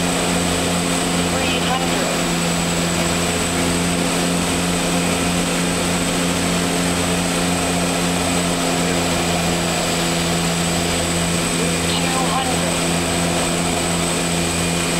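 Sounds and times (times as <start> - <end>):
turboprop engines droning: 0.0 - 14.9.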